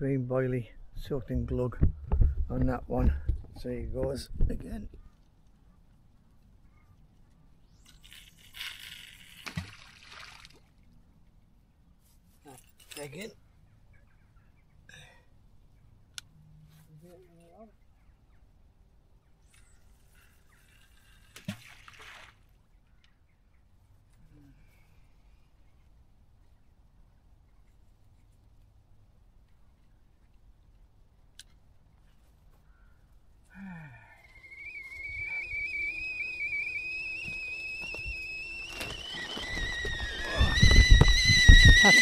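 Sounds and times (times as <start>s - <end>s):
line running off reel: 7.7s - 9.7s, 34.3s - 42.0s
kettle whistling: 34.2s - 42.0s.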